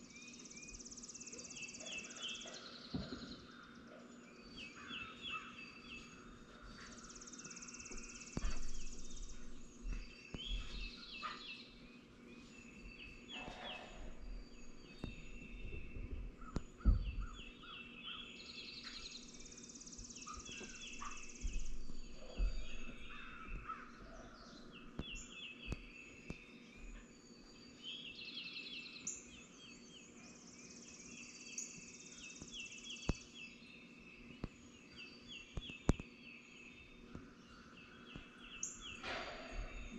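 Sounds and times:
songbirds singing: 0.0 - 39.9
soft low bumps: 7.9 - 11.0, 13.9 - 17.7, 20.6 - 25.9.

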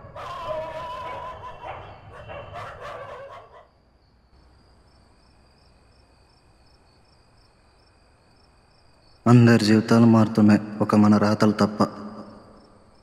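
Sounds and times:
dog barking and howling: 0.0 - 3.7
insect chirping: 0.0 - 13.0.

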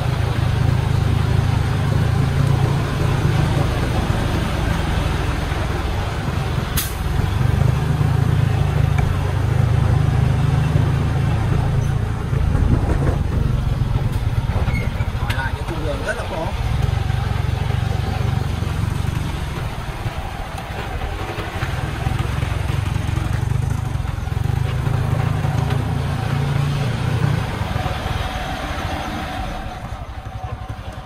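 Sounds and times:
diesel truck engine rumbling: 0.0 - 31.0.

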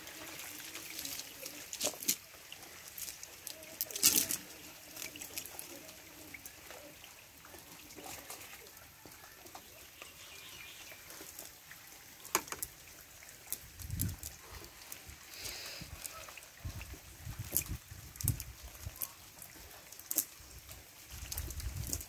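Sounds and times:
sharp water splashes: 0.0 - 8.8
water trickling: 0.0 - 22.0.

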